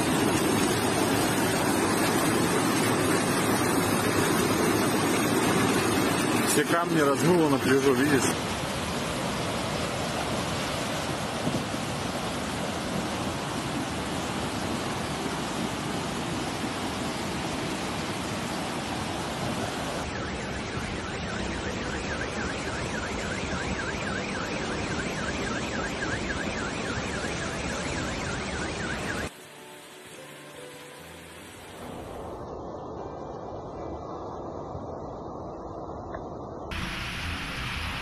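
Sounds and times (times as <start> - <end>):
floodwater rushing: 0.0 - 34.6, 36.7 - 38.0
faint warbling alarm tone: 20.0 - 31.2.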